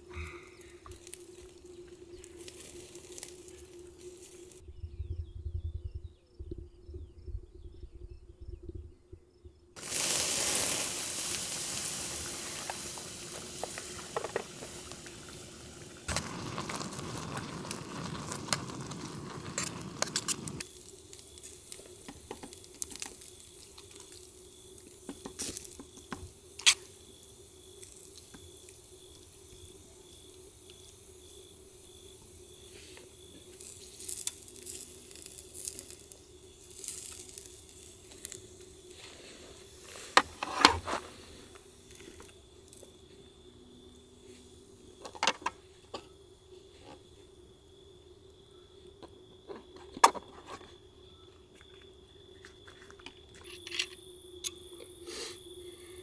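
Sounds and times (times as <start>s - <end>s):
food sizzling in a pan: 0.6s - 4.6s, 9.8s - 43.4s.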